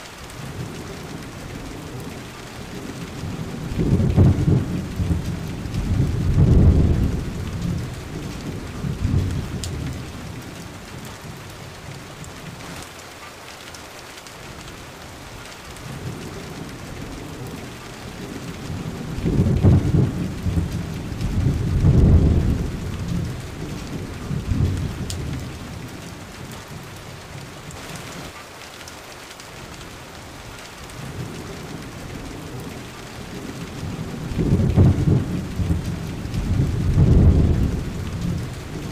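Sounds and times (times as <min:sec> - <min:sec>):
steady rain: 0:00.0 - 0:38.9
rolling thunder: 0:00.4 - 0:11.5, 0:15.9 - 0:26.8, 0:30.9 - 0:38.9.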